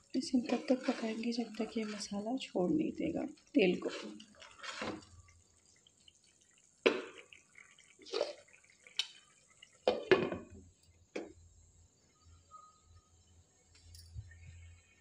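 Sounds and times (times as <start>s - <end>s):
spoon scraping in pan: 0.2s - 2.3s, 3.7s - 5.2s.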